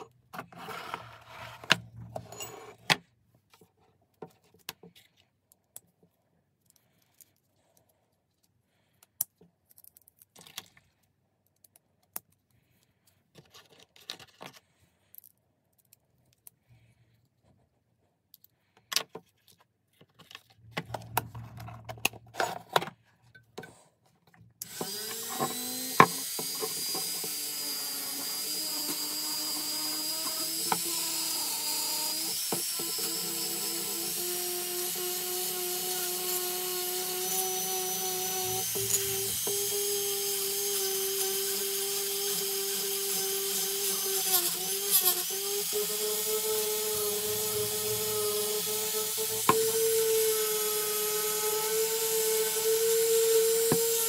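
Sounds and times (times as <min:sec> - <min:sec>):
small power tool spinning: 0:24.6 - 0:54.0.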